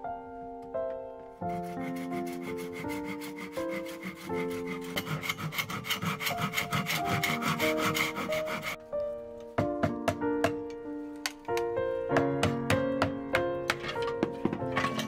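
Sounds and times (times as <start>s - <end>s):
background piano music: 0.0s - 15.0s
hand saw cutting bamboo: 1.5s - 8.8s.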